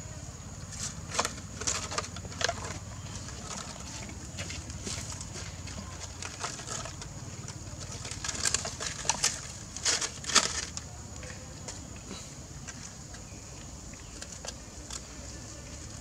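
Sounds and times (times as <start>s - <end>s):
dry leaves rustling and crackling: 0.7s - 11.4s.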